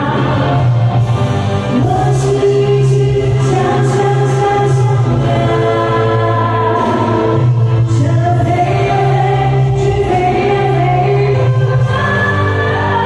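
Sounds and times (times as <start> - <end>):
woman singing pop song: 0.0 - 0.8, 1.7 - 13.0
band accompaniment: 0.0 - 13.0.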